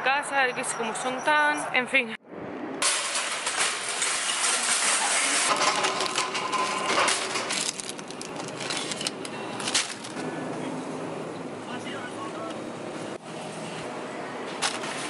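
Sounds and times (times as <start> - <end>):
metal shopping cart rattling: 2.8 - 10.2.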